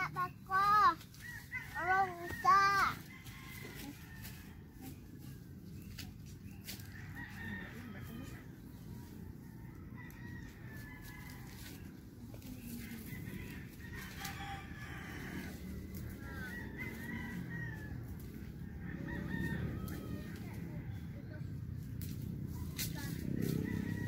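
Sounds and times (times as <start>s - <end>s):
rooster crowing: 16.4s - 18.2s, 18.9s - 20.7s.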